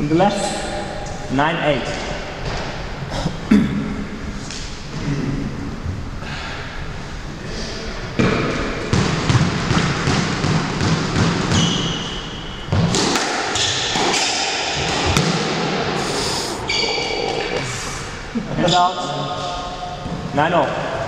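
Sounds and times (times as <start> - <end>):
shoes squeaking on wooden floor: 11.5 - 12.4
squash ball cracks: 12.7 - 15.9.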